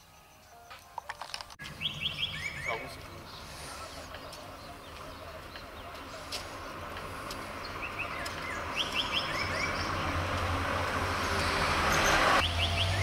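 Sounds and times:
small birds chirping: 0:00.0 - 0:10.2
car approaching: 0:01.6 - 0:13.0.

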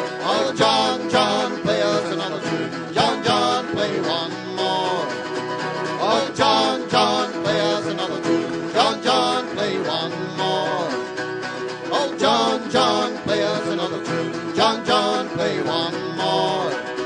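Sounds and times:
acoustic folk band playing: 0:00.0 - 0:17.0.

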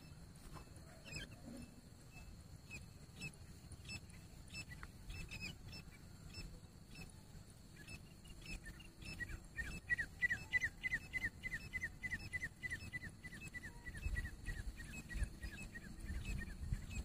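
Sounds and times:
francolin whistled calls: 0:00.0 - 0:17.0.

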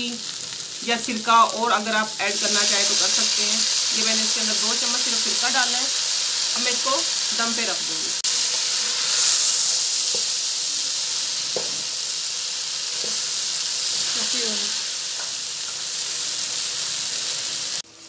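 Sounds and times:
okra sizzling in hot oil: 0:00.0 - 0:18.0
spatula stirring in a wok: 0:08.2 - 0:11.1.

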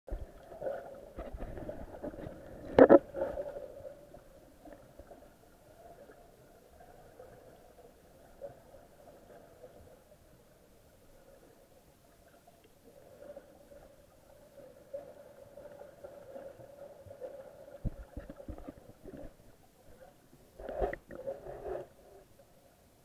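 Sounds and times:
dull knocks underwater: 0:01.2 - 0:03.3, 0:17.8 - 0:19.4.

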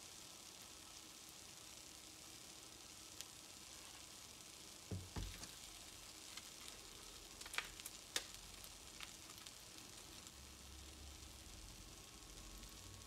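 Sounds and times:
food sizzling in pan: 0:00.0 - 0:13.0
small crackles and clicks: 0:00.0 - 0:13.0
soft thumps: 0:04.9 - 0:05.6.

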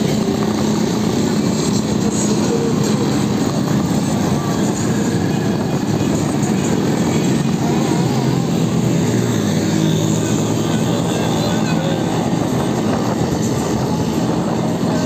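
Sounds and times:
motorbike engines droning: 0:00.0 - 0:15.0
road noise: 0:00.0 - 0:15.0.

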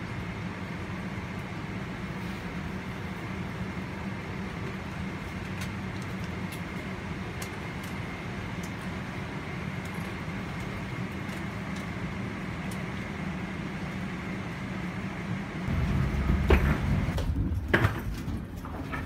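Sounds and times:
aircraft cabin hum: 0:00.0 - 0:19.0
low rumble: 0:15.6 - 0:17.8.

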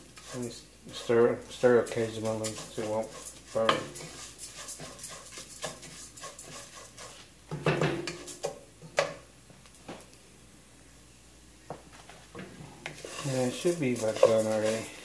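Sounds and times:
wooden spoon scraping rice: 0:00.0 - 0:07.3, 0:08.1 - 0:08.6, 0:12.8 - 0:15.0.

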